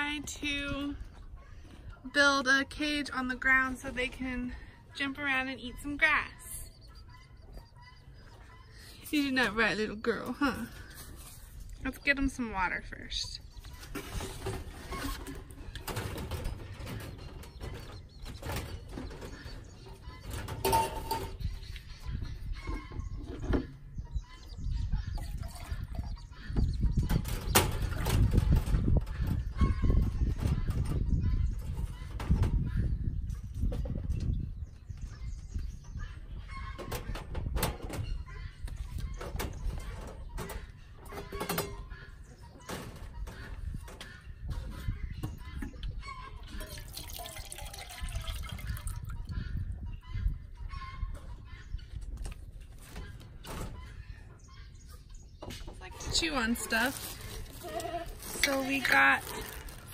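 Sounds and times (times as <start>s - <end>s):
chickens clucking: 0.2s - 47.5s, 48.6s - 59.9s
wire cage and tin can clanking: 13.9s - 21.5s
plastic jug clattering on metal: 20.3s - 21.4s.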